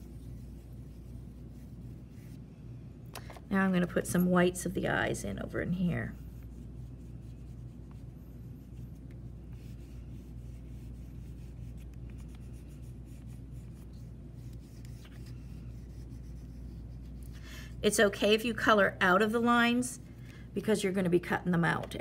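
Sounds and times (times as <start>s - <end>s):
oil pastel scratching on paper: 0.0s - 2.4s, 5.5s - 17.4s
steady low hum: 0.0s - 22.0s.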